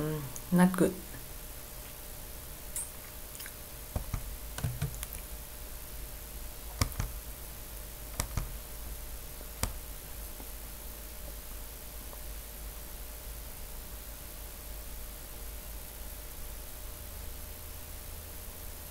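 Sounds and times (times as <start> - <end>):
steady low hum: 0.0 - 18.9
computer mouse clicking: 3.9 - 5.2, 6.8 - 7.2, 8.1 - 8.6, 9.6 - 9.8.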